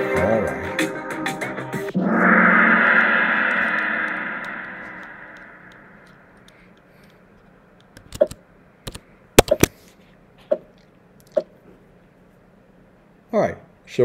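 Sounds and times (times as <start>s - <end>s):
gong-like tone: 1.9s - 6.4s.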